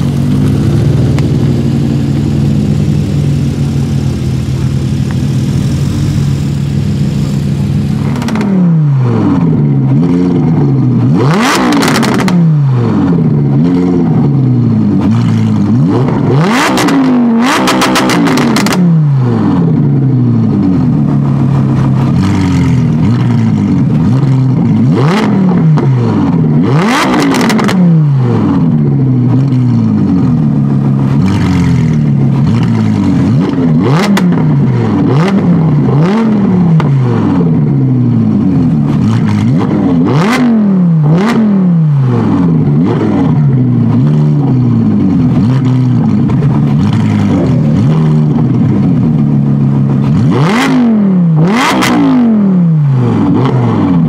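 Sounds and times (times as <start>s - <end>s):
exhaust pops and crackles: 0.0s - 8.6s, 9.6s - 12.4s, 14.8s - 18.9s, 20.9s - 27.8s, 28.8s - 37.0s, 38.6s - 40.4s, 42.6s - 50.7s
car engine revving: 0.0s - 54.0s.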